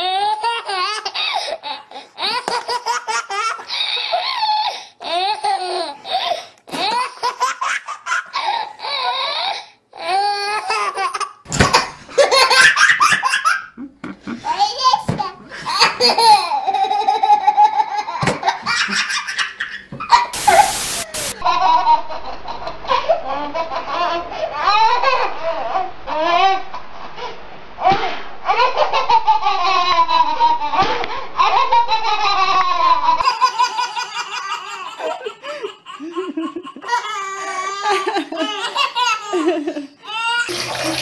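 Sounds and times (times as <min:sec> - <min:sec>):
babies laughing: 0:10.6 - 0:26.8, 0:27.8 - 0:41.0
short loud noise burst: 0:20.4 - 0:33.2.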